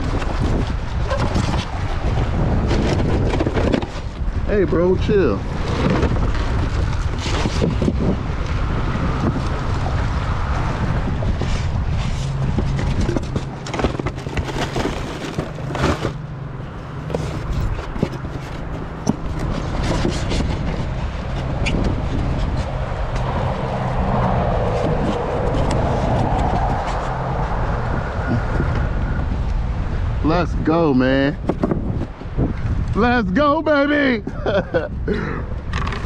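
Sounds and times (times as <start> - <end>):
wind rumbling on microphone: 0.0 - 36.0
foam cooler scraping and knocking: 0.1 - 8.1, 11.4 - 22.8.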